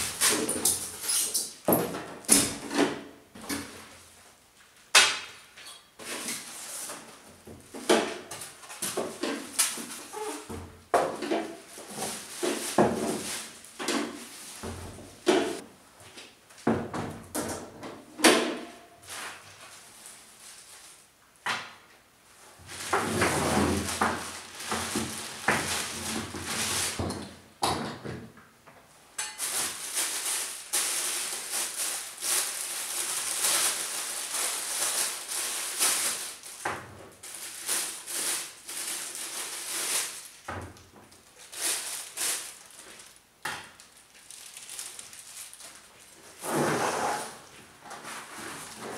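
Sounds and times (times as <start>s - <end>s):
plastic bags crinkling: 22.6s - 27.0s, 29.2s - 46.4s.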